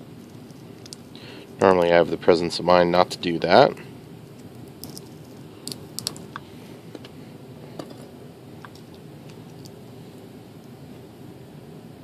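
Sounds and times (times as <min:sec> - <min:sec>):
tape clicks and crinkles: 0:04.3 - 0:06.4.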